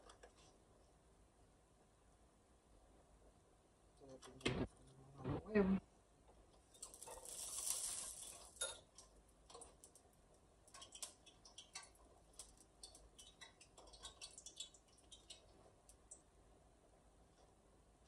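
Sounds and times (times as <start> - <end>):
rustling: 6.7 - 8.7.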